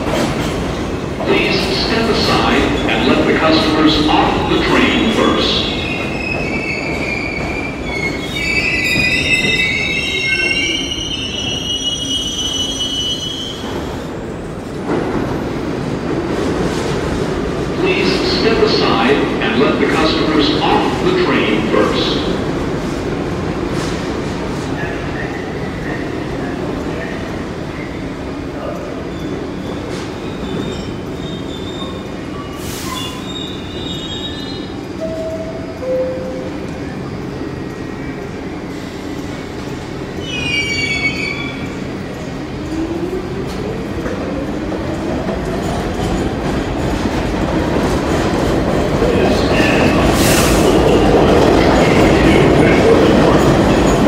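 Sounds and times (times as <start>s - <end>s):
high-pitched brake squeals: 5.9s - 13.8s, 40.2s - 41.8s
train rumble: 13.6s - 54.0s.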